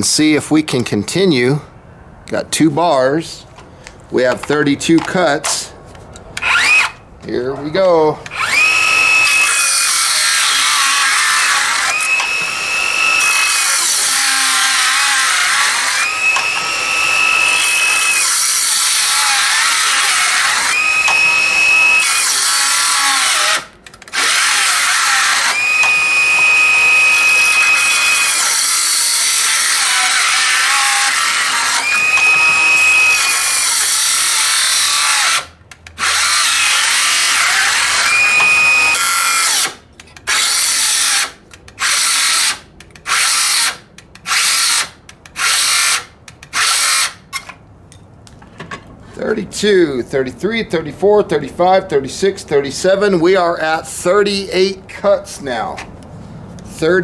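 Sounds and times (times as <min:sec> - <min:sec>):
circular saw cutting wood: 0:06.4 - 0:07.0, 0:08.3 - 0:47.2
saw motor whining: 0:06.4 - 0:07.0, 0:08.2 - 0:47.2.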